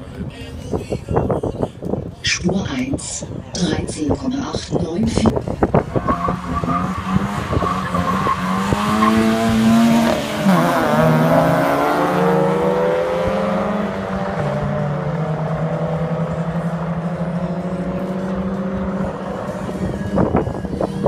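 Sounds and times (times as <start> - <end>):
cars accelerating hard: 5.2 - 21.0.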